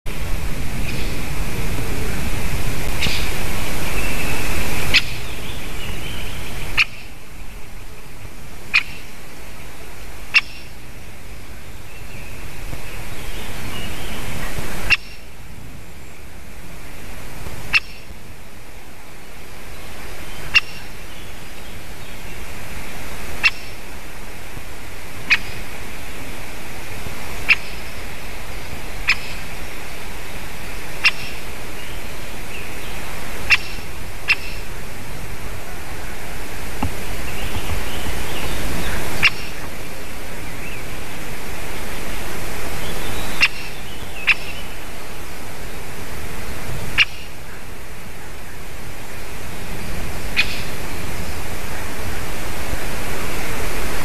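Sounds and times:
background hiss: 0.1 - 54.0
woodpecker sharp calls: 2.9 - 7.2, 8.7 - 9.1, 10.3 - 10.9, 14.8 - 15.3, 17.7 - 18.1, 20.4 - 21.8, 23.4 - 23.8, 25.2 - 25.7, 27.4 - 29.9, 30.6 - 34.9, 36.8 - 39.8, 42.8 - 44.8, 46.9 - 47.7, 50.1 - 50.8.

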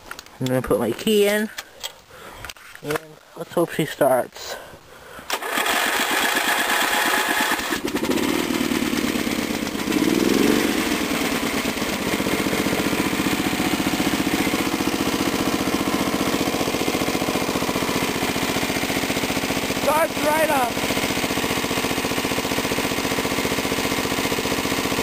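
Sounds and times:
electric starter cranking: 5.3 - 25.0
small engine running: 5.3 - 25.0.

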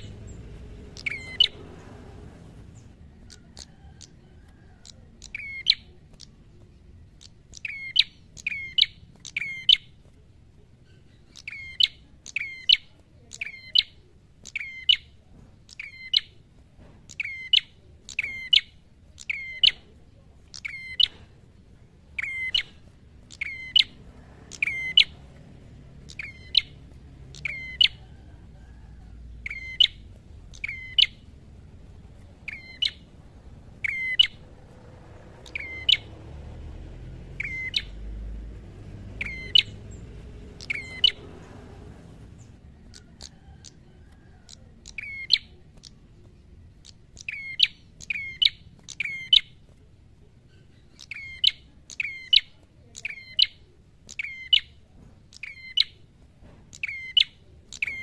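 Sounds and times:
bird chirping sharply: 0.0 - 4.2, 4.8 - 6.4, 7.1 - 9.9, 10.8 - 16.4, 17.0 - 19.9, 20.5 - 21.3, 22.0 - 28.2, 29.4 - 31.4, 32.2 - 33.2, 33.8 - 34.5, 35.4 - 41.5, 44.5 - 46.1, 46.7 - 49.6, 50.4 - 56.0, 56.7 - 58.0.

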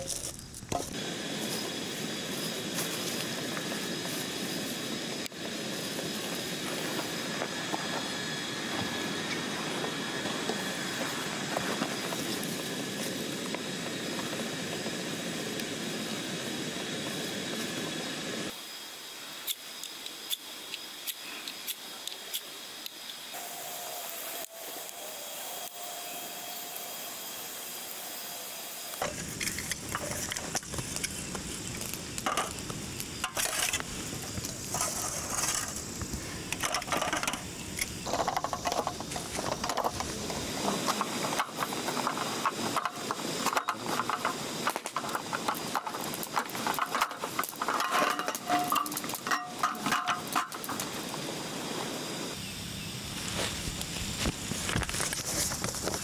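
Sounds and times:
twigs rustling: 0.0 - 1.6, 29.0 - 51.0
faint hiss: 0.0 - 56.0
fire crackling: 0.0 - 56.0.

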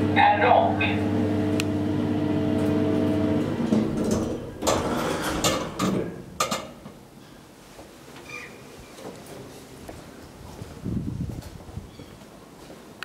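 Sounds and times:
hydraulic lift pump motor humming: 0.0 - 5.6
lift doors clunking and rattling: 2.5 - 7.1.

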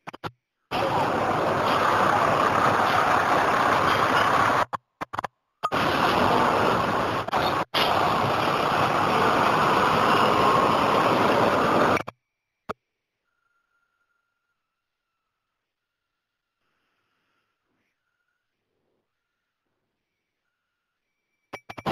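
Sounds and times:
traffic: 0.2 - 12.2
city bus idling: 0.7 - 4.6, 5.7 - 12.0.

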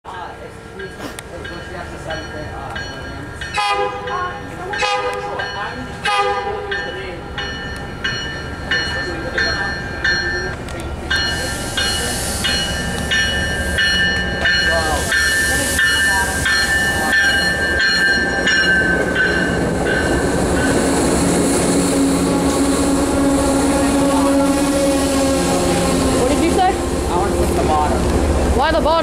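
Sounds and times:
train rolling over rails: 0.1 - 29.0
bell ringing: 6.7 - 20.8.

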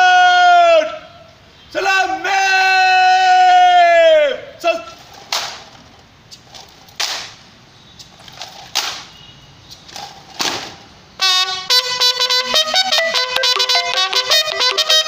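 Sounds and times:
music: 12.1 - 15.0.

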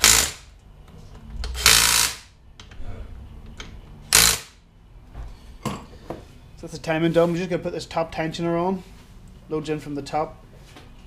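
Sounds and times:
cordless power driver running: 0.0 - 0.4, 1.5 - 2.2, 4.1 - 4.5.

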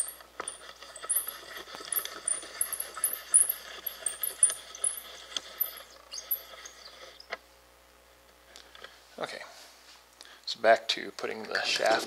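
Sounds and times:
tripod clicks and rattles: 0.0 - 6.7.

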